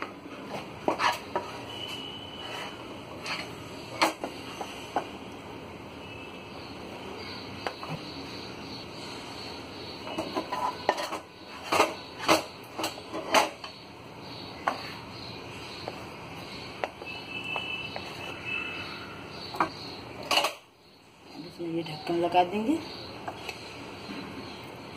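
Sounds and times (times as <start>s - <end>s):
metal utensils clinking and scraping: 10.1s - 13.7s.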